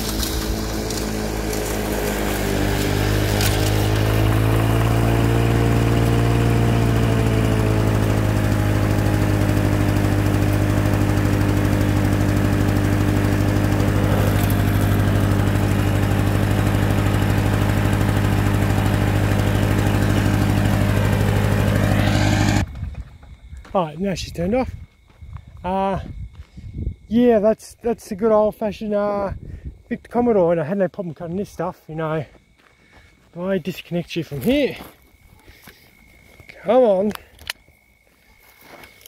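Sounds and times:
lawnmower engine running: 0:00.0 - 0:22.8.

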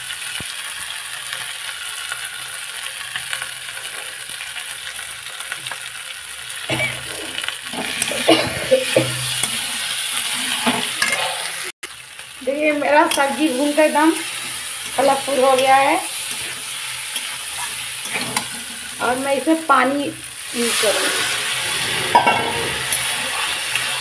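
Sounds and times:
food sizzling in oil: 0:00.0 - 0:24.0
metal spatula scraping pan: 0:06.8 - 0:11.7, 0:14.2 - 0:19.0, 0:20.6 - 0:24.0.

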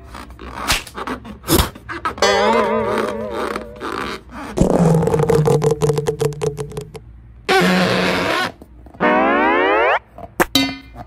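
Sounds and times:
comic fart-like buzz: 0:07.5 - 0:10.0.

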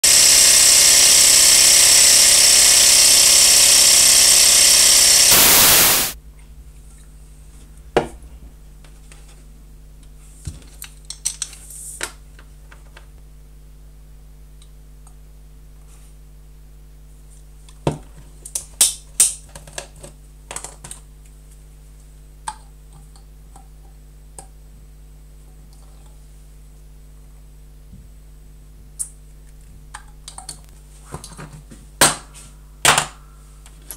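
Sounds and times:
loud dense noise: 0:00.0 - 0:06.2
faint steady hum: 0:00.4 - 0:18.6.

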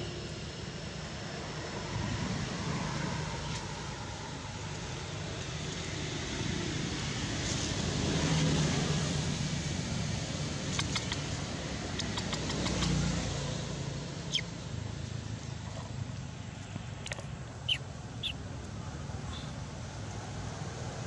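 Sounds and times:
distant vehicle engine hum: 0:00.0 - 0:21.0
faint clicks: 0:10.7 - 0:11.3.

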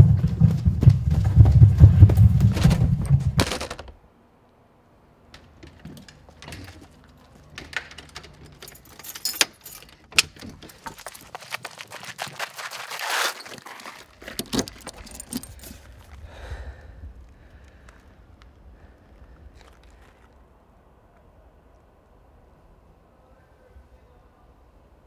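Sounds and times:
loud low pounding with clatter: 0:00.0 - 0:03.9
keys jangling at a door lock: 0:05.7 - 0:11.3, 0:14.2 - 0:16.1.

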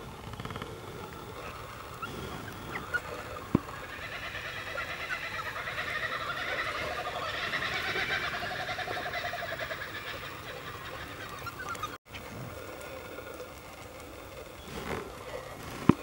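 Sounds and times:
animal call with rapid notes: 0:01.3 - 0:12.2.

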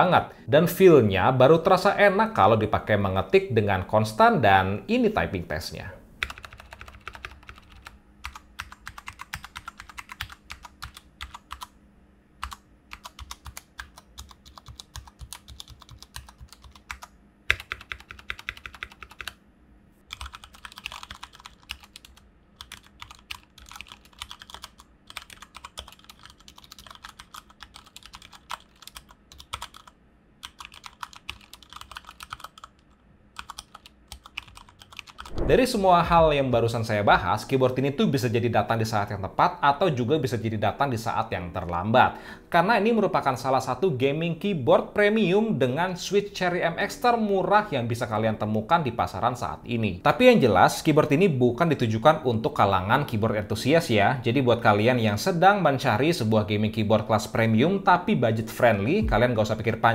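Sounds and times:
mechanical keyboard typing: 0:06.2 - 0:11.7, 0:12.4 - 0:19.4, 0:20.1 - 0:35.3.

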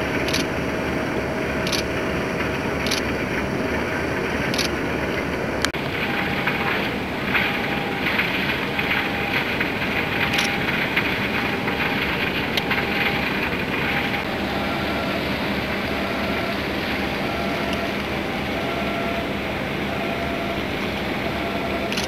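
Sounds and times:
water rushing: 0:00.0 - 0:22.0
wind: 0:00.0 - 0:22.0
faint clicks: 0:00.3 - 0:00.5.

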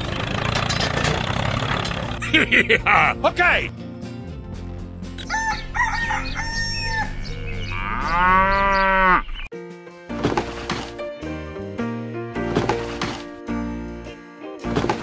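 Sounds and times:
background music: 0:01.9 - 0:08.8, 0:09.5 - 0:15.0
rooster crowing: 0:05.2 - 0:09.3.

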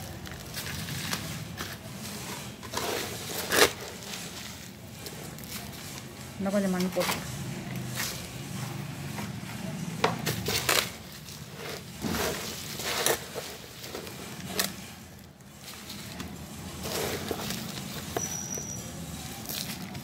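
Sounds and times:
dry peels and soil rustling: 0:00.0 - 0:07.1, 0:10.3 - 0:20.0.

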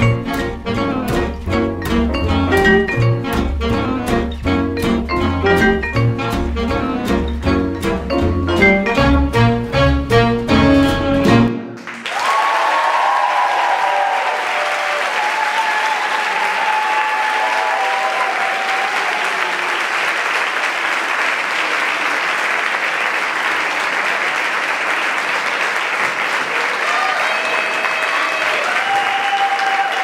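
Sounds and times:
swing music: 0:00.0 - 0:11.8
audience applause: 0:11.7 - 0:30.0
audience cheering: 0:11.8 - 0:22.3, 0:26.0 - 0:30.0.

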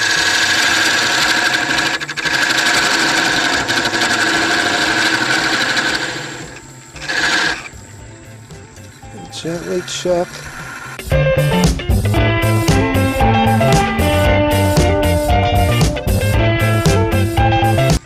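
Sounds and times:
wood lathe scraping whine: 0:00.0 - 0:11.2.

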